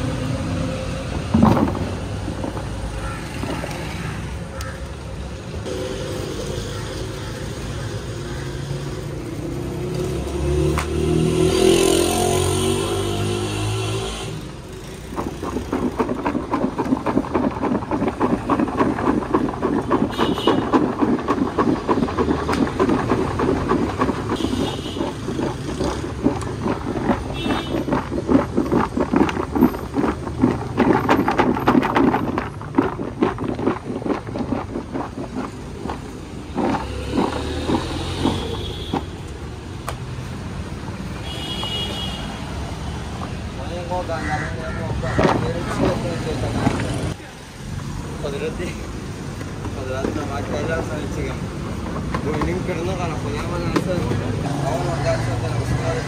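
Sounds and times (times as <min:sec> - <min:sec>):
road traffic: 0:00.0 - 0:56.0
engine chugging: 0:14.3 - 0:39.7.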